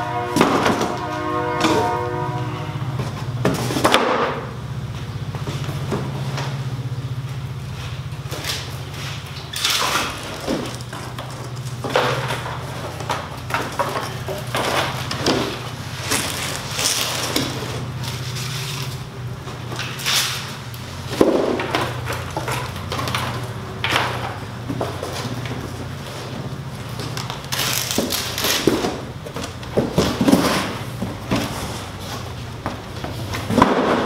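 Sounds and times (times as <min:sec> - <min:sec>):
steady low hum: 0:00.0 - 0:34.0
cardboard scraping and rustling: 0:07.7 - 0:34.0.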